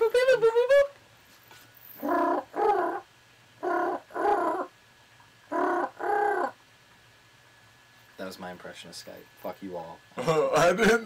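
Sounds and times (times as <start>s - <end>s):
man humming two-note calling tone: 0.0s - 1.0s.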